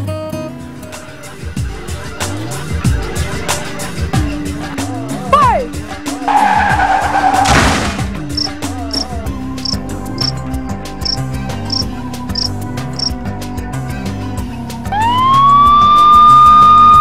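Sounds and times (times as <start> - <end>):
background music with beat: 0.0 - 17.0
regular ticks: 8.4 - 10.4, 11.0 - 13.1
police siren: 14.9 - 17.0.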